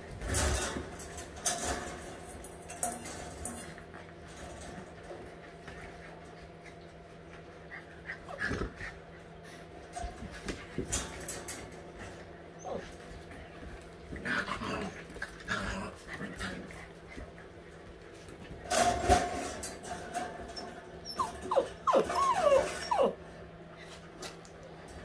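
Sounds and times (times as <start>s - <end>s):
puppies growling and yipping: 5.3s - 9.8s, 11.9s - 13.1s, 14.1s - 23.7s
puppies whining: 12.5s - 13.0s, 20.0s - 23.7s.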